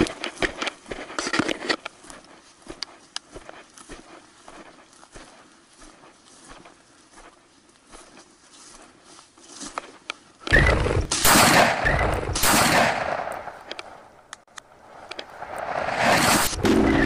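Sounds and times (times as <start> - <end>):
rustling through vegetation: 0.0 - 11.1
shotgun blasts: 10.5 - 14.1.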